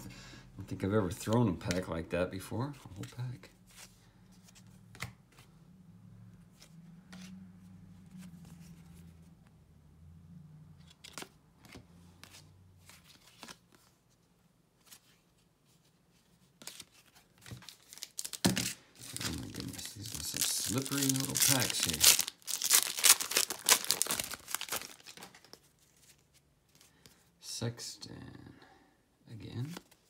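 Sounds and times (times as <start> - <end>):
cards flipped by hand: 3.8 - 5.5, 10.8 - 14.0, 16.6 - 27.2
foil card pack crinkling: 17.6 - 26.2.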